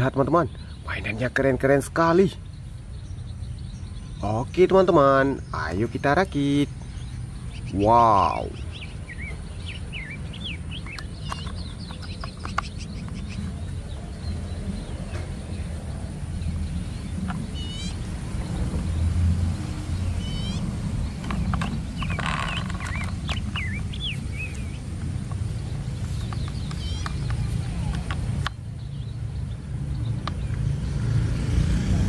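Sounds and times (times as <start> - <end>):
steady low rumble: 0.0 - 31.6
birds chirping: 0.0 - 32.0
plastic toy wheels clicking: 21.2 - 23.6.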